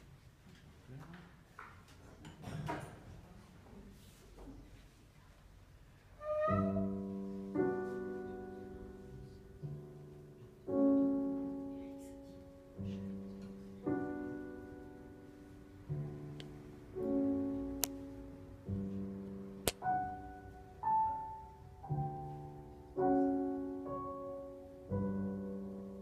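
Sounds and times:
piano playing slow chords: 6.2s - 26.0s.

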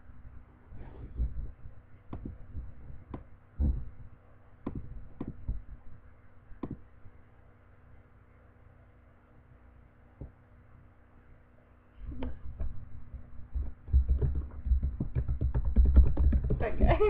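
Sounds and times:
dull thumps: 0.8s - 5.8s, 6.6s - 6.9s, 12.0s - 17.0s
computer keys clicking: 13.6s - 16.6s.

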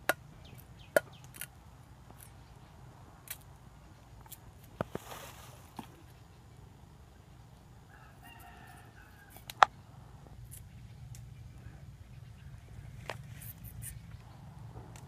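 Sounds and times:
rooster crowing: 7.8s - 9.6s.

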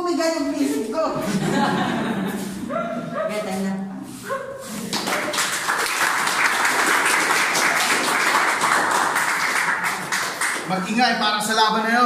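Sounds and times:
crowd applauding: 4.9s - 11.0s.

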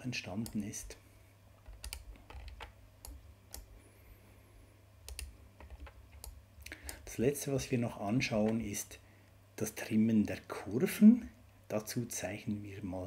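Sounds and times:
low steady hum: 0.0s - 13.0s
mouse and keyboard clicks: 1.6s - 3.7s, 5.0s - 7.0s.

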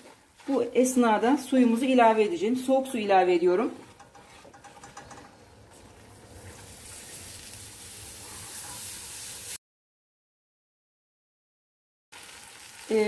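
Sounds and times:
wooden spoon stirring: 0.0s - 7.3s
water sizzling in hot pan: 5.8s - 9.6s, 12.1s - 13.0s.

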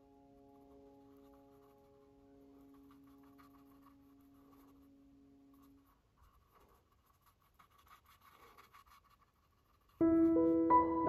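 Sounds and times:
faint steady tone: 0.0s - 7.4s
paintbrush scratching on canvas: 0.3s - 10.7s.

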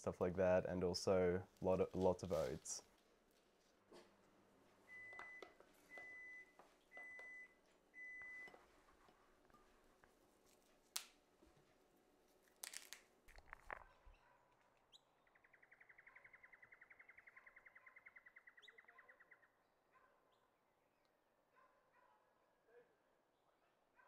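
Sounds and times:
bird trilling: 14.9s - 19.6s.

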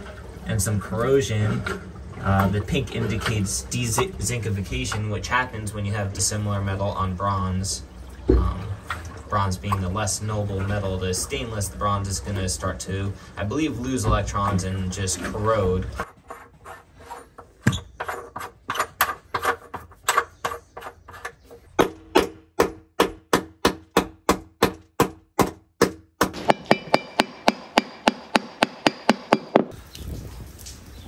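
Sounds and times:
hammer knocking on metal fitting: 21.8s - 29.7s.

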